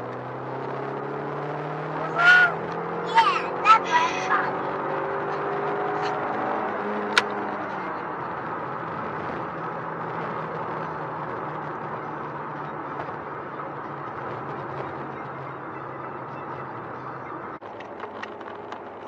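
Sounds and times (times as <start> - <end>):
car engine drone: 0.0 - 19.0
road and tyre noise: 0.0 - 19.0
sharp click: 7.1 - 7.4.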